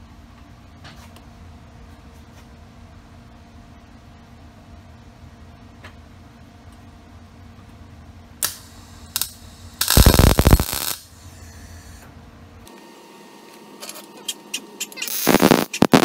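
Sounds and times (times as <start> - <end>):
welding arc crackling: 8.4 - 11.1, 15.0 - 16.0.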